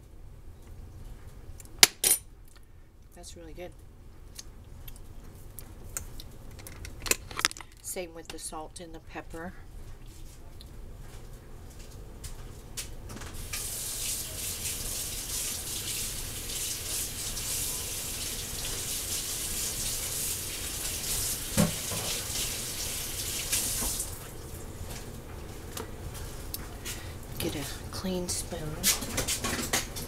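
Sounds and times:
tap running water into sink: 18.2s - 24.2s.

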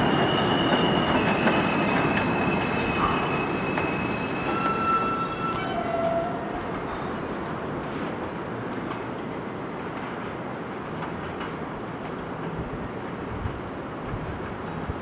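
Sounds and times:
train brakes squealing: 0.0s - 10.8s.

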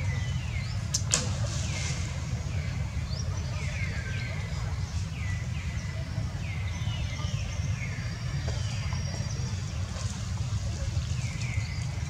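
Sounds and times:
steady low rumble: 0.0s - 12.0s.

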